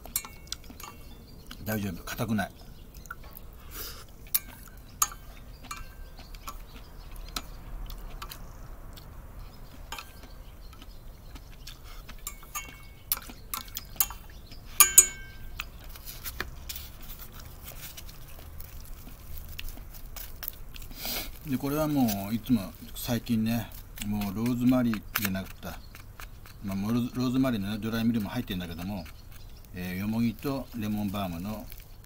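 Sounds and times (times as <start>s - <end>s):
chopsticks clinking on metal saucepan: 0.0s - 1.2s, 4.3s - 6.6s, 9.9s - 10.2s, 12.2s - 14.2s, 14.8s - 15.5s.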